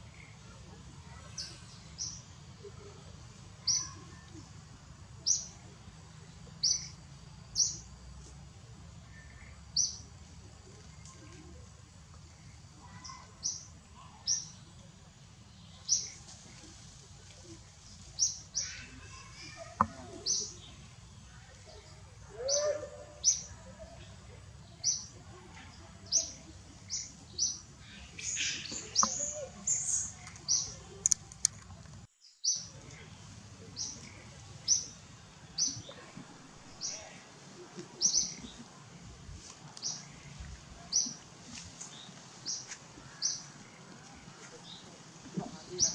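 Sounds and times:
bird chirping: 26.1 - 31.4.

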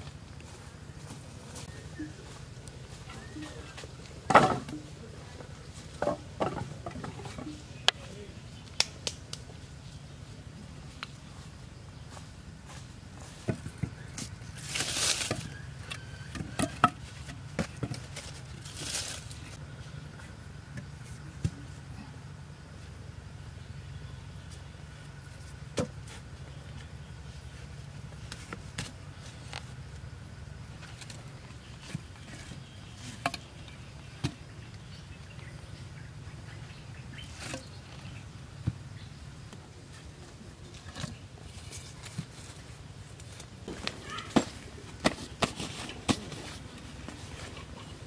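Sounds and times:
hands scraping dirt on earth floor: 39.4 - 48.0.

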